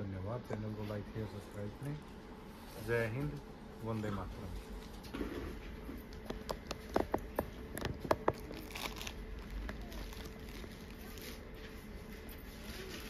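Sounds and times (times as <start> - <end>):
faint steady hum: 0.0 - 13.0
handling clicks and crinkles: 6.0 - 13.0.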